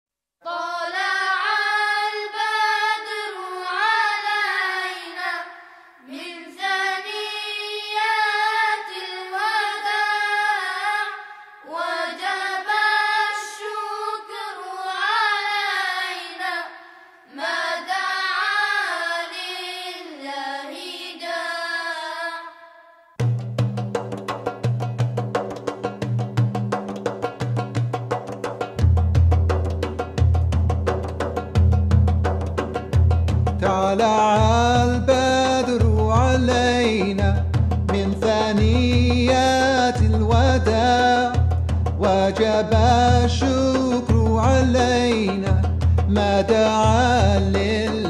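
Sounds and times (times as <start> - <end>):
person singing unaccompanied: 0.4 - 5.5, 33.6 - 48.0.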